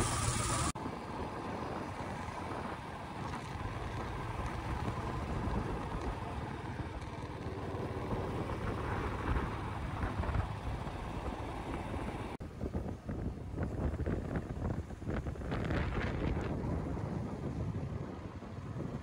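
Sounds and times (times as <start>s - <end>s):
motorcycle engine running: 0.0s - 13.0s
wind noise on microphone: 12.4s - 19.0s.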